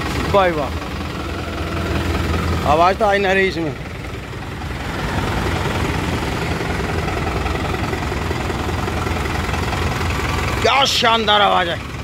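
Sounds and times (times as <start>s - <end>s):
tractor diesel engine idling: 0.0s - 12.0s.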